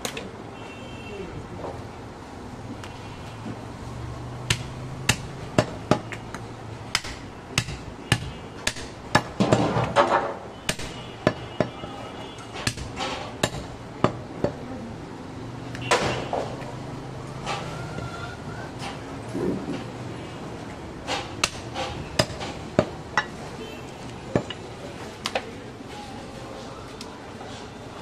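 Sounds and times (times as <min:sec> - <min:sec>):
cleaver chopping meat on wood: 0:04.4 - 0:06.2, 0:06.9 - 0:10.0, 0:10.7 - 0:11.8, 0:12.6 - 0:14.6, 0:21.1 - 0:23.0.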